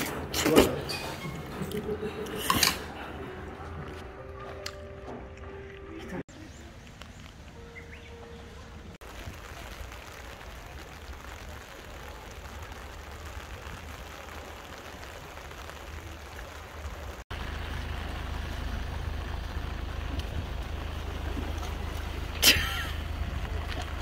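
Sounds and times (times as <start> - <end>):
wind: 0.0 - 24.0
rain: 6.3 - 24.0.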